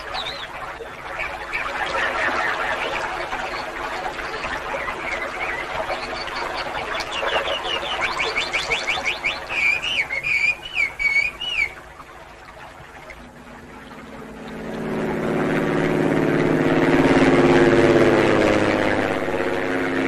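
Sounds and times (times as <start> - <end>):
bird singing: 0.0 - 11.8
frogs croaking chorus: 0.0 - 13.1.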